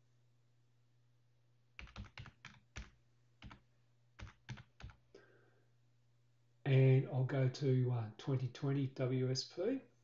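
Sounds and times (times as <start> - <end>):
keyboard typing: 1.8 - 3.6, 4.2 - 5.0.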